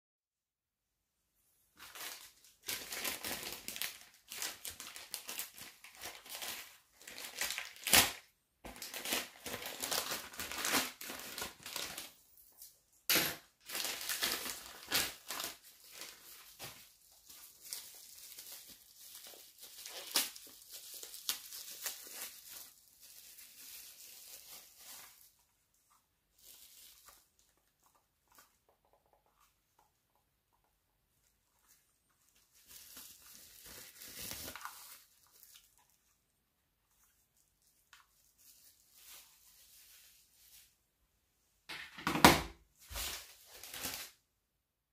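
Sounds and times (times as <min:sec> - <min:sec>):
plastic bag tearing: 0:01.8 - 0:12.2, 0:13.1 - 0:25.3, 0:26.4 - 0:27.3, 0:32.3 - 0:35.9, 0:42.8 - 0:44.2
plastic packaging crinkling: 0:01.8 - 0:29.5, 0:31.5 - 0:36.3, 0:36.9 - 0:40.8, 0:42.8 - 0:44.2.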